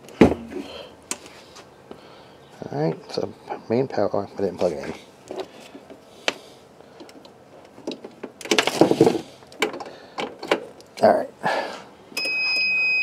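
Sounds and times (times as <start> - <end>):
cables rustling and scraping: 4.3 - 11.1
handling clicks and knocks: 7.0 - 11.0.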